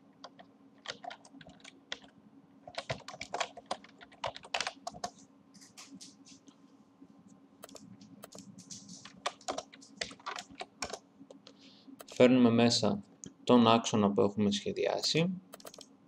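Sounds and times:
faint low hum: 0.0 - 16.0
typing on computer keyboard: 0.2 - 2.1, 2.7 - 5.2, 7.6 - 11.0, 15.5 - 15.9.

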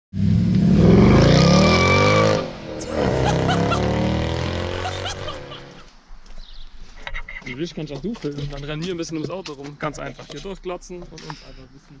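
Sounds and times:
car engine accelerating: 0.2 - 5.8.

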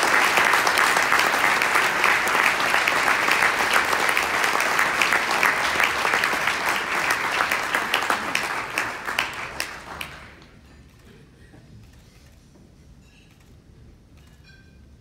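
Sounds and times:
audience applauding: 0.0 - 10.6.

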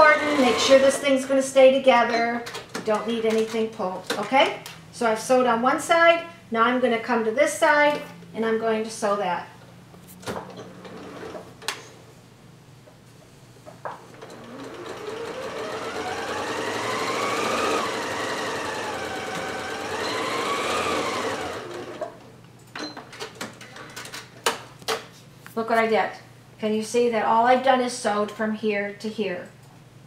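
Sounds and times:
sewing machine motor whine: 0.0 - 1.4, 14.1 - 22.2.

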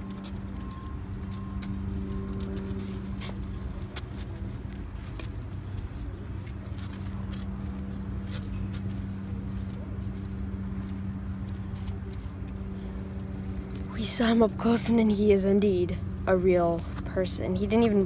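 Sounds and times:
low mechanical hum: 0.0 - 18.0.

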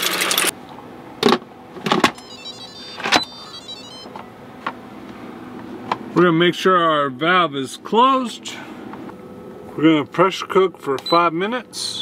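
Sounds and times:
faint high chime tones: 2.2 - 4.1.

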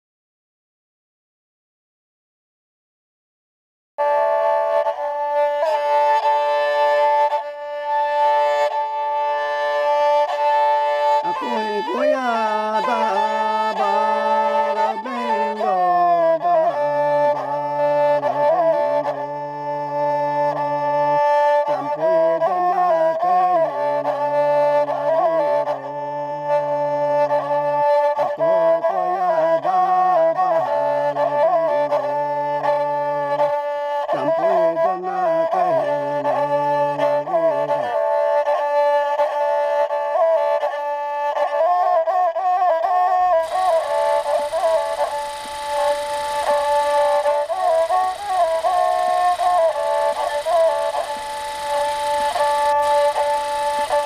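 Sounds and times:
bowed fiddle melody: 4.0 - 54.0
held drone: 5.0 - 22.4, 43.2 - 54.0.

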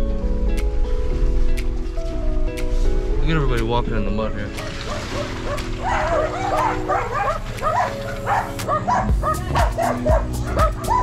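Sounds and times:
background music with held chords: 0.0 - 11.0
dog barking rapidly: 4.6 - 11.0
low drumbeat: 8.6 - 11.0.

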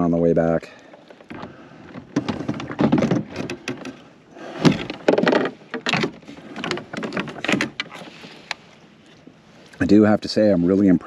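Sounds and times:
fishing gear knocks and scrapes: 0.8 - 9.3.

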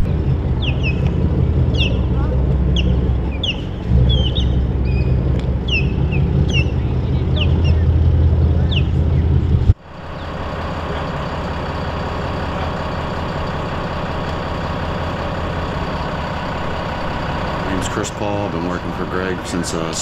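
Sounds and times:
birds chirping: 0.0 - 14.4
boat engine rumbling: 0.0 - 20.0
steady engine hum: 0.0 - 20.0.

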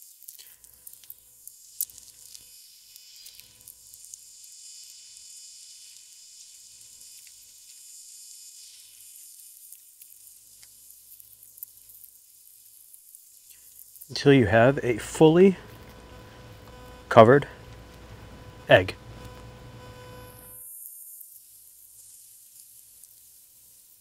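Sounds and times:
hands wrapping raw bacon: 0.0 - 4.2
faint high-pitched hiss: 0.0 - 24.0.

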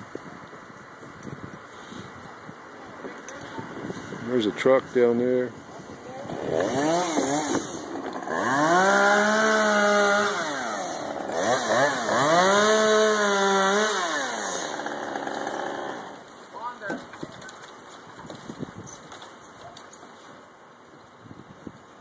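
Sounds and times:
chainsaw revving: 6.2 - 16.2.

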